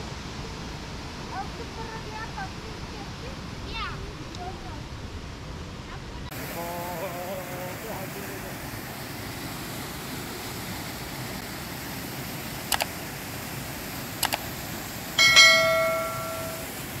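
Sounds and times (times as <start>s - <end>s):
steady hiss: 6.2s - 17.0s
quick double clicks: 12.7s - 12.9s, 14.2s - 14.4s
bell-like ding: 15.2s - 16.8s.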